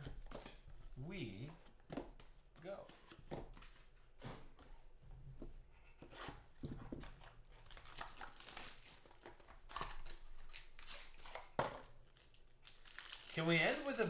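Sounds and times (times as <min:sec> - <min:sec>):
plastic wrap tearing and crinkling: 0:07.6 - 0:14.0.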